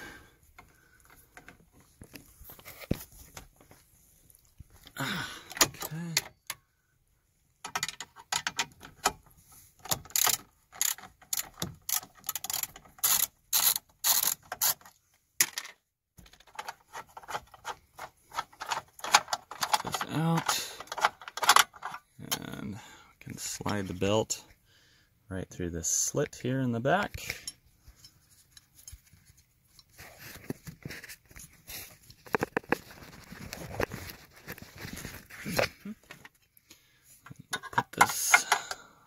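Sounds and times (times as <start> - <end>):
ratchet wrench clicking: 9.9 - 14.8.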